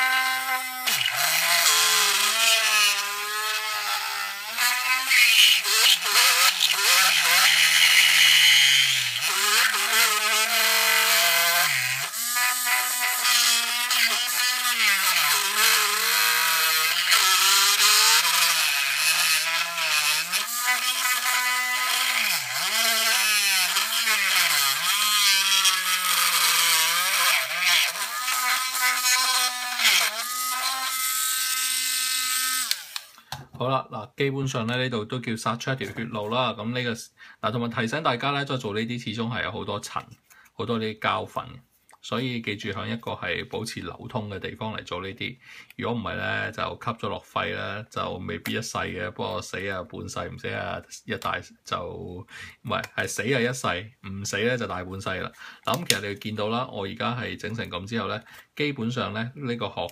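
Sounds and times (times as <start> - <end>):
rotary tool motor whine: 0.0 - 33.2.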